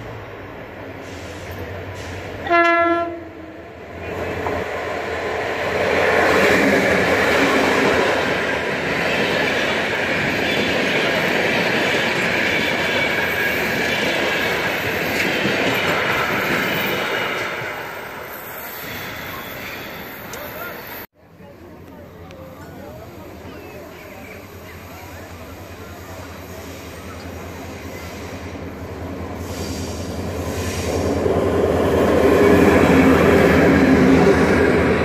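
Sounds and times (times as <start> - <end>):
locomotive horn blast: 2.4 - 3.6.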